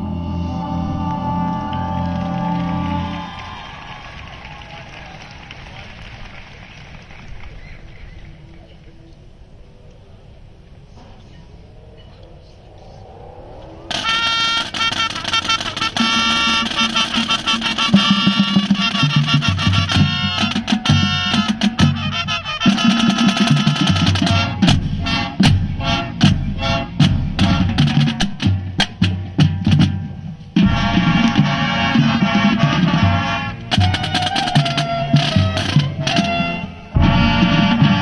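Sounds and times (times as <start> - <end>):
brass chords: 0.0 - 3.7, 13.9 - 38.0
marching band playing: 0.0 - 6.4, 13.9 - 38.0
sharp drum hits: 22.7 - 38.0.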